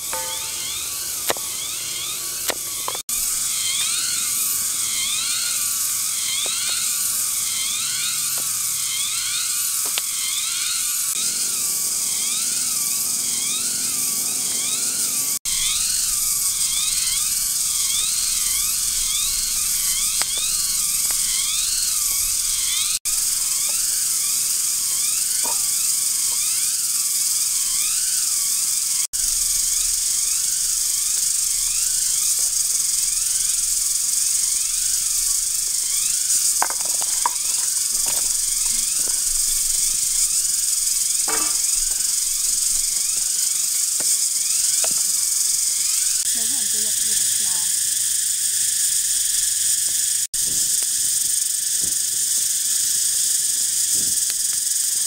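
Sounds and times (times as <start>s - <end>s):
insects buzzing drone: 0.0s - 55.0s.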